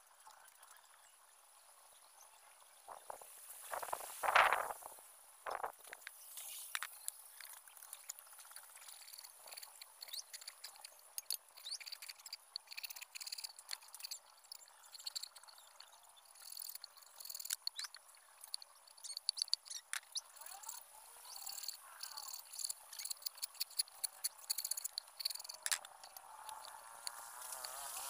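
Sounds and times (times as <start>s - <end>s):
high-pitched insect drone: 8.3s - 28.0s.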